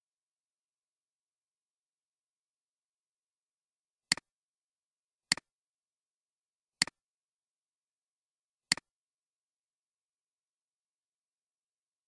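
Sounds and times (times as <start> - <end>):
computer mouse clicks: 4.1 - 4.3, 5.3 - 5.5, 8.7 - 8.9.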